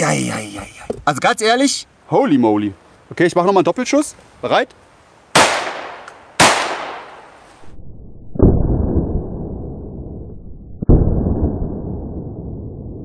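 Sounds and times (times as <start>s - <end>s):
blank pistol shots: 5.4s - 7.2s
deep muffled slowed shots: 7.6s - 13.0s.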